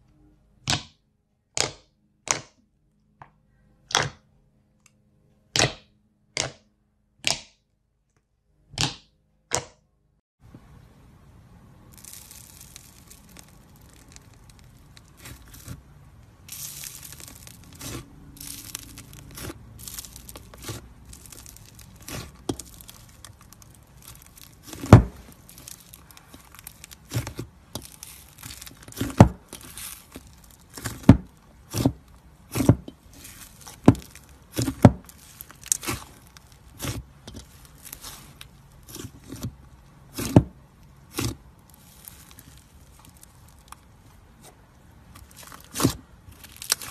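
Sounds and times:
slime squishing and crackling: 11.8 - 46.9.

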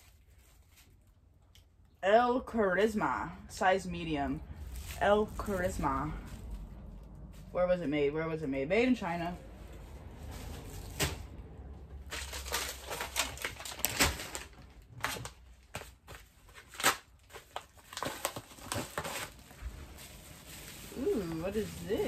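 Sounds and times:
plastic packaging crinkling: 0.0 - 1.5, 4.5 - 7.5, 9.4 - 22.0.

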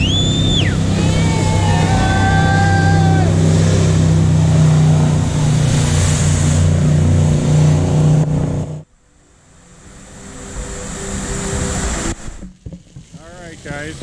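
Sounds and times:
boat engine droning: 0.0 - 14.0
hissing water spray: 10.1 - 14.0.

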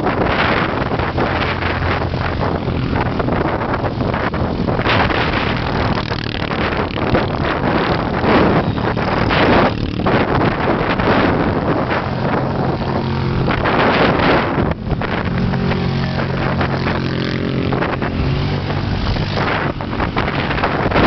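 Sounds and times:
quad bike engines passing: 0.0 - 21.0
wind buffeting microphone: 0.0 - 21.0.

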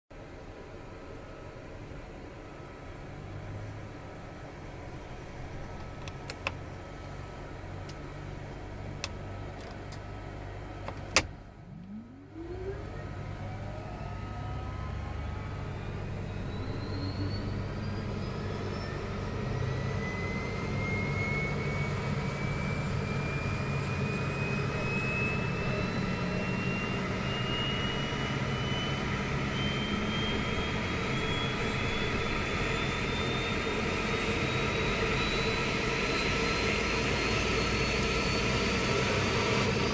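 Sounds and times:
jet engine whine rising in pitch: 11.2 - 39.9.

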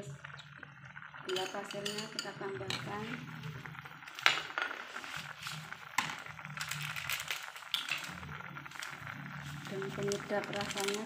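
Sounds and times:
metal ladle clinking on pot: 1.3 - 2.8.

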